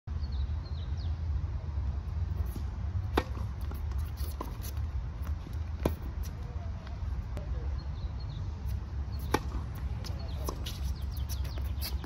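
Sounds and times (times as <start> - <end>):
low rumble of wind: 0.1 - 12.0
tennis ball struck by racket: 2.4 - 6.3, 9.2 - 12.0
tennis ball bouncing: 2.4 - 6.5, 8.7 - 12.0.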